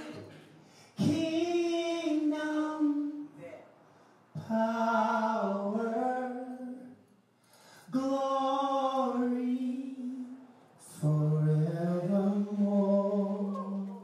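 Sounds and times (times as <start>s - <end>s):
person singing unaccompanied: 11.0s - 14.0s.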